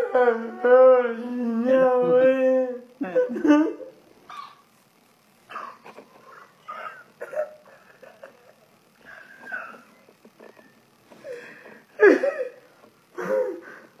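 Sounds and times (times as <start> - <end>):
man laughing helplessly: 7.2 - 10.8, 12.0 - 12.6, 13.2 - 13.9.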